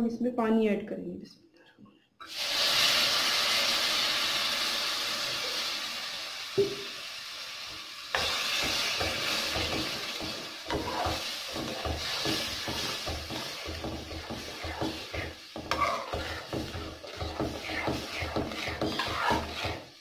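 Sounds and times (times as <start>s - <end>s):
mixture sizzling and hissing: 2.2s - 20.0s
metal spoon scraping a pan: 8.2s - 20.0s.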